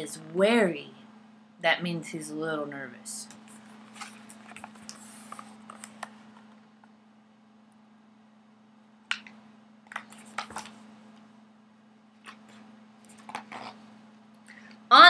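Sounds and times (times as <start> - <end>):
steady low hum: 0.0 - 15.0
soft rustling: 3.3 - 6.6
book clicks and knocks: 9.1 - 10.8, 12.2 - 13.8.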